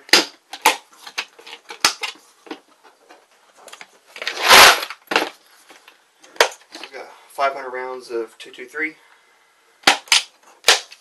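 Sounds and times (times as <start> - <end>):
plastic can scraping: 4.1 - 5.4.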